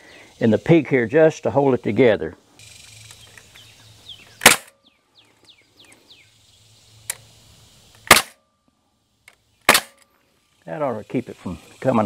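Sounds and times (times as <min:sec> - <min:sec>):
nail gun shot: 0:04.4 - 0:04.8, 0:08.0 - 0:08.4, 0:09.6 - 0:10.0.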